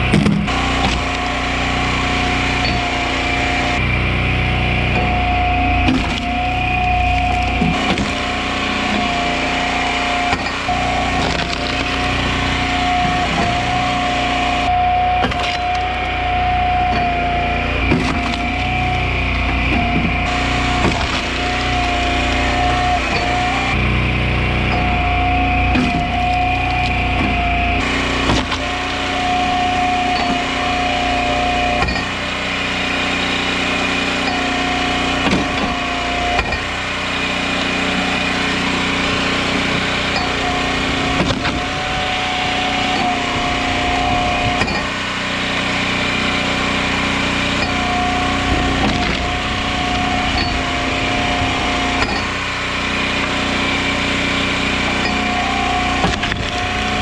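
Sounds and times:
hydraulic ram whine: 0.0 - 57.0
log splitter engine running: 0.0 - 57.0
wood cracking: 5.8 - 14.4, 15.2 - 16.2, 17.0 - 32.3, 38.0 - 52.6.

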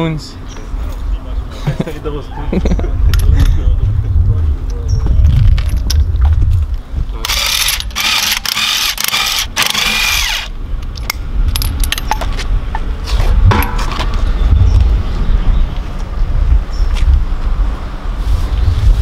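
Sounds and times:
steady low rumble: 0.3 - 19.0
metal clinks of tools: 11.0 - 12.3.

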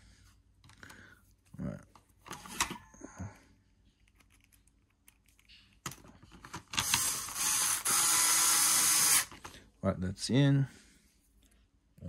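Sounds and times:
powered screwdriver whirring: 6.8 - 9.4.

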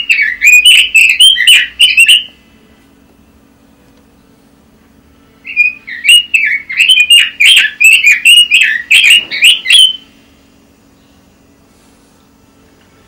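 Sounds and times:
bird singing whistled notes: 0.0 - 2.4, 5.4 - 10.1.

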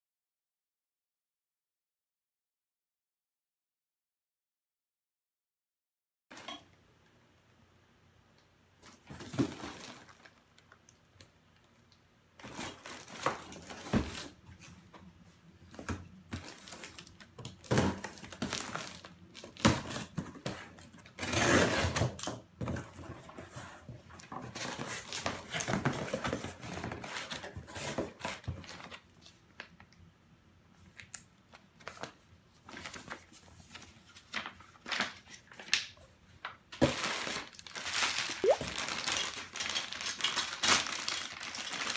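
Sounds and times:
paper and bubble wrap rustling: 8.8 - 10.7, 12.4 - 14.8, 15.7 - 29.4, 31.8 - 35.9, 36.8 - 41.9.

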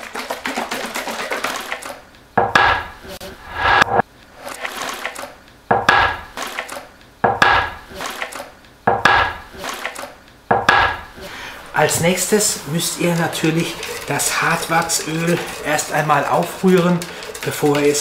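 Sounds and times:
tin scraping on tabletop: 11.9 - 18.0
metal tin knocking on wood: 12.2 - 18.0.

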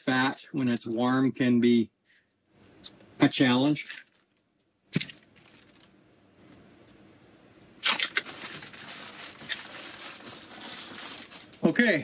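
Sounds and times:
paper crumpled by hand: 5.0 - 5.9, 7.8 - 11.7.

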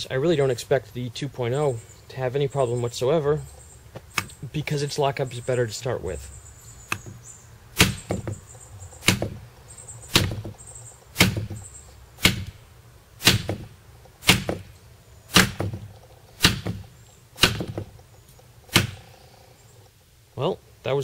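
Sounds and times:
knife spine knocking on wood: 7.8 - 8.4, 9.0 - 9.4, 10.2 - 10.6, 11.2 - 11.6, 15.4 - 17.9.

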